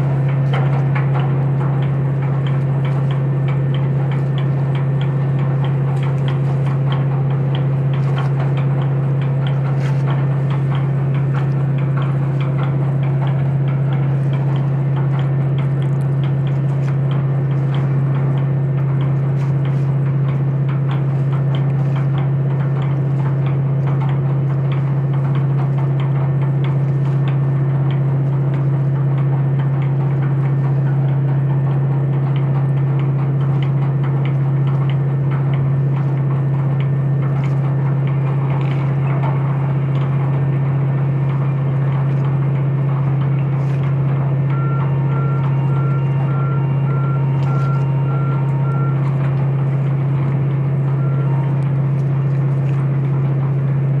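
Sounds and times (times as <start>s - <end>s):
diesel machinery drone: 0.0s - 54.0s
warning beeper beeps: 44.5s - 49.3s, 50.7s - 51.8s.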